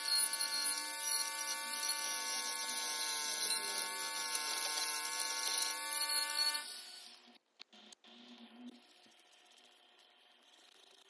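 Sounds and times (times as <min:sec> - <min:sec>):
rotary tool cutting plastic: 0:00.0 - 0:11.0.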